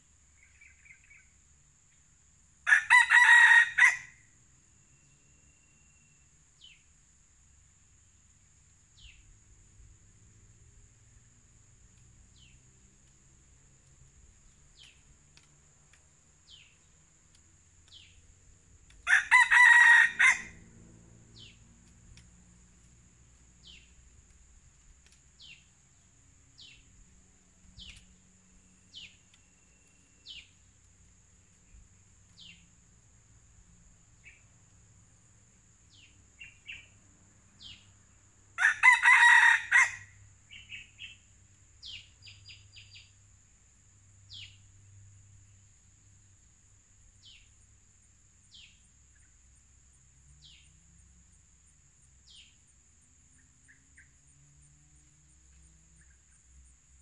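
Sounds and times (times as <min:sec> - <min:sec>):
faint bird chirps: 0:00.2 - 0:02.0, 0:04.7 - 0:06.9, 0:27.7 - 0:30.7
high insect whine: 0:00.2 - 0:57.0
rooster crowing: 0:02.6 - 0:04.3, 0:19.0 - 0:20.8, 0:38.6 - 0:40.2.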